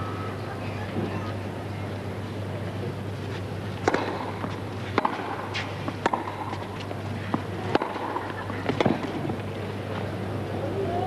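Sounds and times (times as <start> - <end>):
faint crowd noise: 0.0 - 11.0
low steady hum: 0.0 - 11.0
tennis ball struck by racquet: 3.8 - 9.4.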